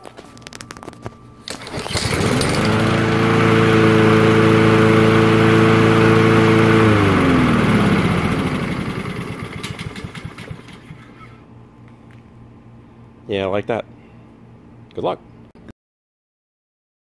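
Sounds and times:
lawnmower engine pull-started: 0.5s - 11.2s.

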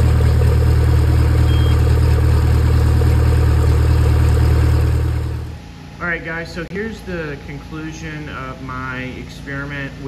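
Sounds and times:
outboard engine idling: 0.0s - 5.8s.

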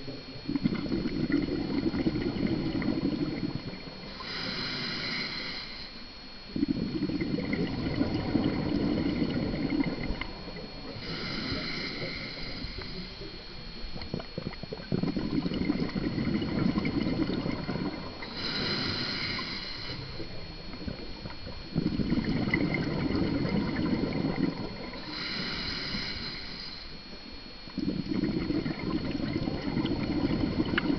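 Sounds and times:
bubbly diver exhalations: 0.5s - 5.2s, 6.6s - 13.2s, 14.0s - 26.6s, 27.8s - 30.9s
hissing regulator inhale: 0.8s - 13.7s, 15.7s - 21.2s, 21.8s - 27.2s.

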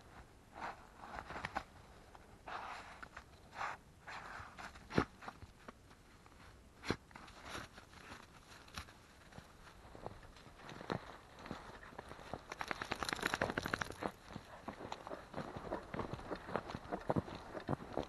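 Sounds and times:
crunching footsteps on trail: 7.3s - 18.0s.

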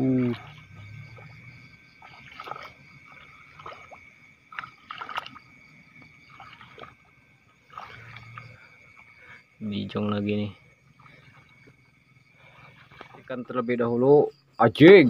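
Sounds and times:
hand sloshing in muddy water: 0.0s - 10.2s, 10.8s - 13.6s
water splashes and squelches: 0.0s - 13.8s.

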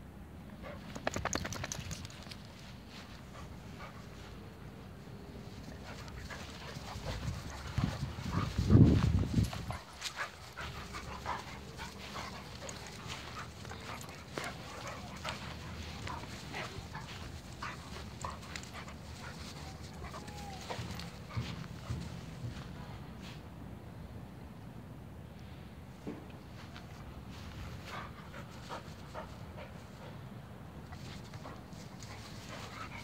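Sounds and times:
dogs scuffling and snuffling: 0.6s - 23.4s, 30.8s - 33.0s.

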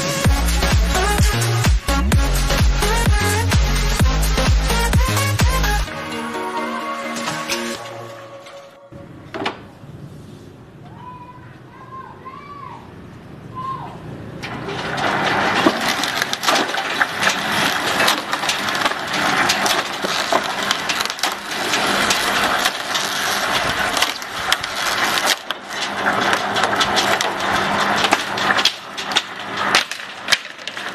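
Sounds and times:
bamboo cracking and splintering: 14.9s - 30.9s.

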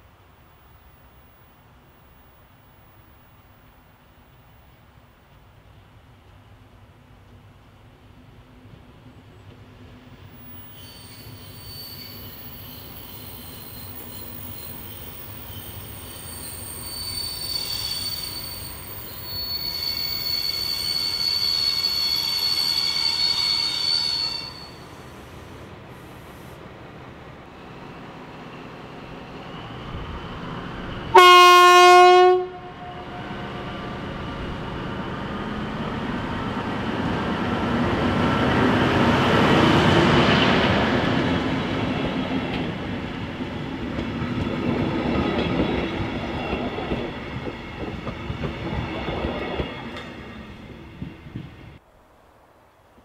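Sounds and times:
diesel locomotive engine: 0.0s - 51.8s
metallic squeal from train: 10.3s - 26.6s
locomotive horn blast: 31.1s - 34.0s.

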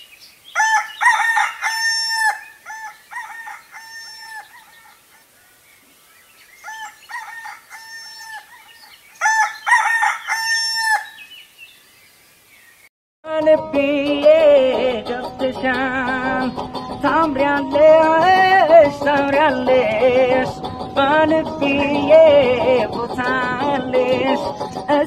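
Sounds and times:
rooster crowing: 0.6s - 5.6s, 6.6s - 11.3s.

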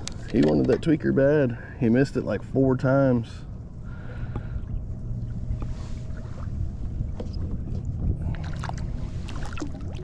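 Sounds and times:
water lapping against a hull: 0.0s - 10.0s
wind rumble on microphone: 4.3s - 10.0s.

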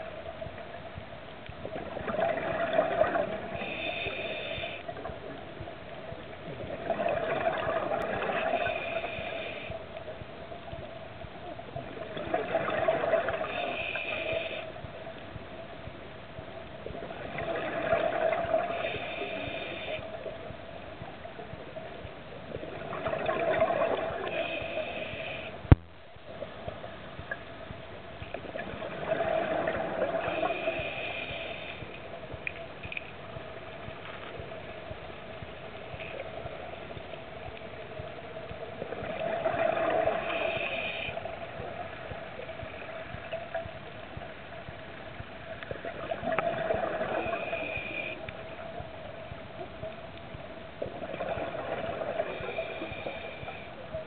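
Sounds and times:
underwater hum: 0.0s - 54.0s
underwater breath bubbles: 1.6s - 5.4s, 6.5s - 9.8s, 11.8s - 14.8s, 16.9s - 20.4s, 22.5s - 25.8s, 28.3s - 33.1s, 38.8s - 43.7s, 45.6s - 48.9s, 50.8s - 53.9s.

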